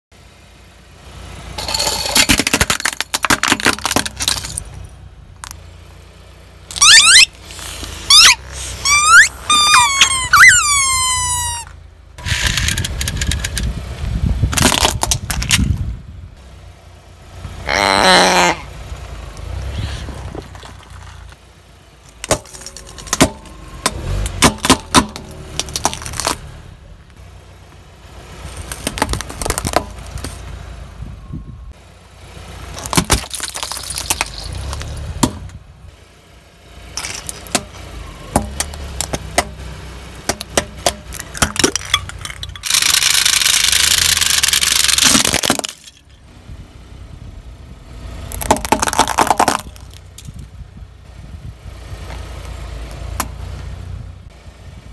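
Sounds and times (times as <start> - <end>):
car rumble: 0.1 - 54.9
plastic cracking under tyre: 2.3 - 4.6, 14.5 - 15.8, 22.1 - 26.4, 28.6 - 30.4, 32.8 - 35.4, 40.3 - 46.0, 48.3 - 50.4
plastic pens crushed: 40.9 - 46.0.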